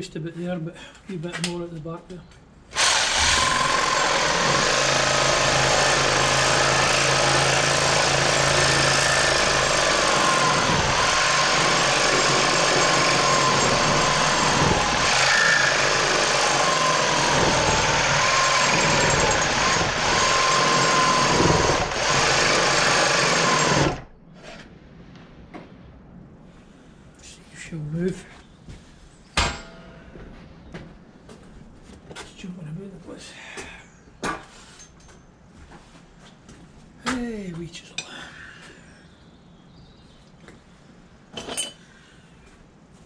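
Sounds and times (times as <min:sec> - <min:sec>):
reciprocating saw cutting metal: 0:02.7 - 0:24.1.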